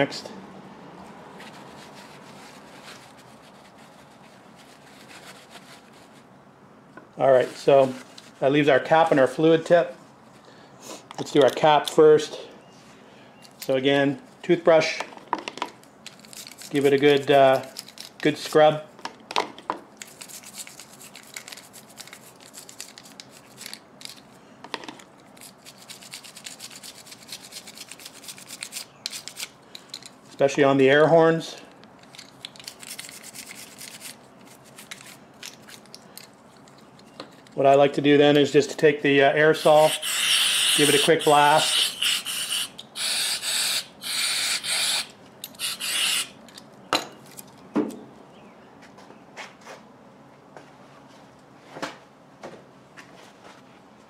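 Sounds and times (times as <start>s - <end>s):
toothbrush scrubbing metal: 25.4s - 29.5s, 32.6s - 35.2s, 39.6s - 46.3s
aerosol can spraying: 39.6s - 46.3s.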